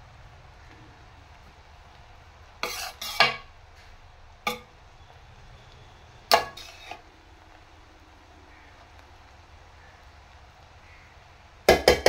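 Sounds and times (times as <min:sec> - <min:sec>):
metal spoon scraping a pan: 0:02.6 - 0:03.5, 0:04.5 - 0:04.7, 0:06.3 - 0:07.0.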